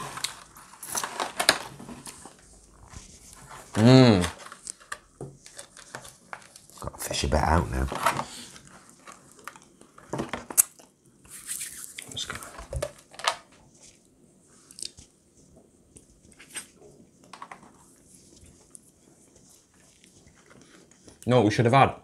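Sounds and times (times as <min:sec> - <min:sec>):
plastic tray crinkling: 0:00.0 - 0:02.4.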